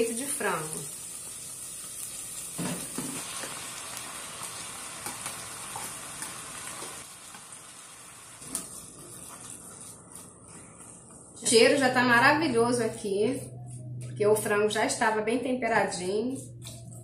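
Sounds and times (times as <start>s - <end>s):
food sizzling in a saucepan: 0.0s - 11.6s.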